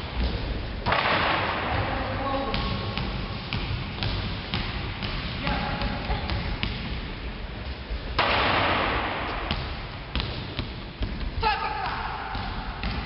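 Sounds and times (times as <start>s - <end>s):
basketball bouncing on wooden floor: 0.1s - 7.1s, 8.3s - 13.0s.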